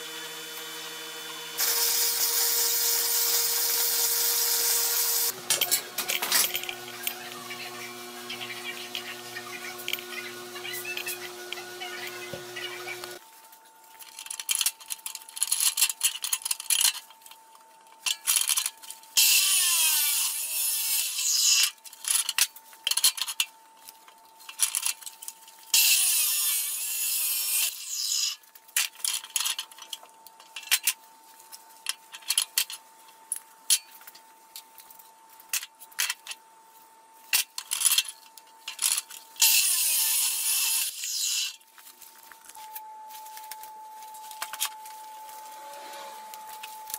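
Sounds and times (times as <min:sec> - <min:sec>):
chop saw cutting steel: 0:00.0 - 0:13.2, 0:19.2 - 0:21.8, 0:25.8 - 0:28.4, 0:39.4 - 0:41.6.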